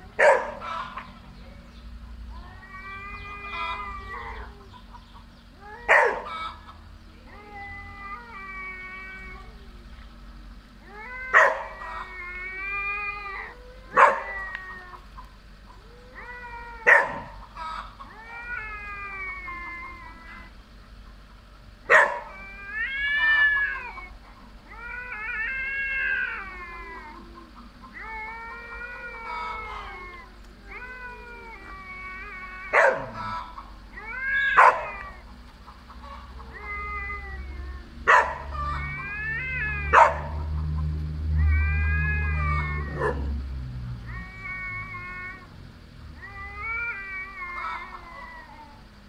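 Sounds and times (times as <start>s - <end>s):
cats yowling: 0.0s - 49.0s
cat hissing: 24.7s - 35.3s, 36.0s - 40.5s.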